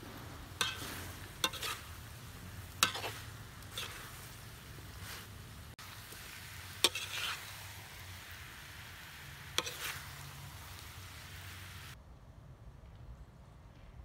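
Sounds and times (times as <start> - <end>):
syrup sizzling in a pan: 0.0 - 12.0
metal spoon clinking on pan: 0.6 - 1.8.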